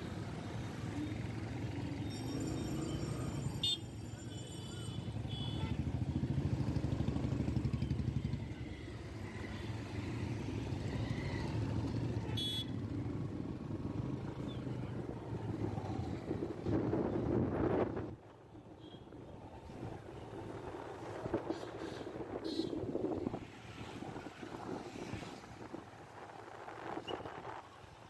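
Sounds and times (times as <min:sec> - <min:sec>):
motorcycles passing: 0:05.8 - 0:17.9.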